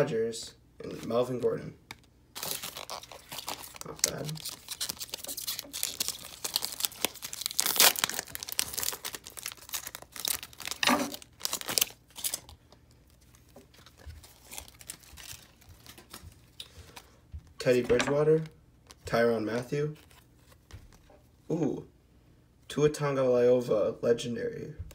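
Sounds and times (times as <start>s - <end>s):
faint handling of cards: 0.8s - 21.5s
wrapper tearing and crinkling: 2.4s - 16.6s.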